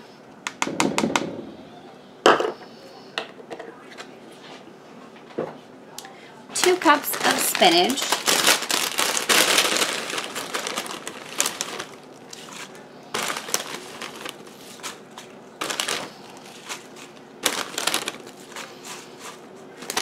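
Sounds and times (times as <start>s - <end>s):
plastic bag crinkling: 6.6s - 20.0s
leaves rustling: 7.0s - 14.9s.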